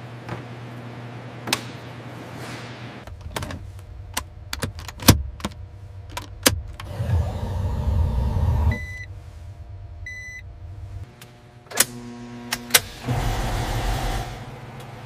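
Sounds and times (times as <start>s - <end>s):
low hum: 3.0s - 15.0s
low rumble: 3.1s - 11.1s.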